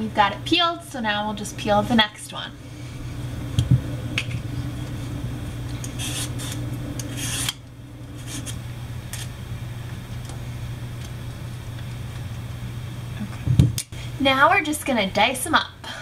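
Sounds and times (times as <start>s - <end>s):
steady low hum: 0.0s - 16.0s
peeler scraping sweet potato: 5.8s - 7.6s, 8.2s - 9.3s.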